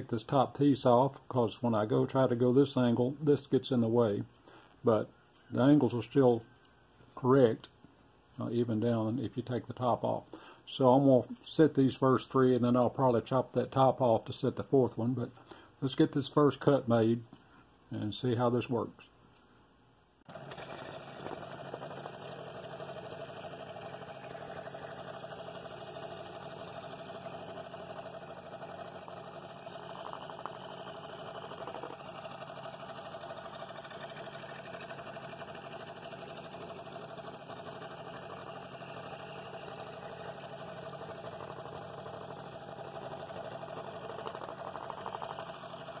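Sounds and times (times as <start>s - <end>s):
scroll saw cutting wood: 20.3s - 46.0s.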